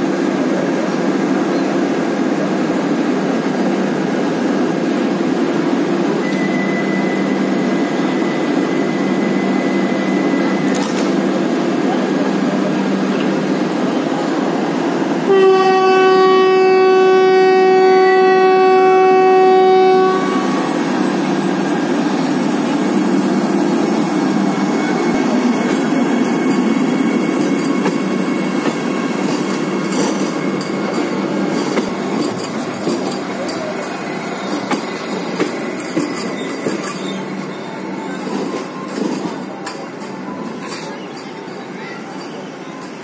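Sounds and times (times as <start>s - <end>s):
train wheels rolling on rails: 0.0s - 15.4s, 16.2s - 43.0s
train horn blast: 15.2s - 20.7s.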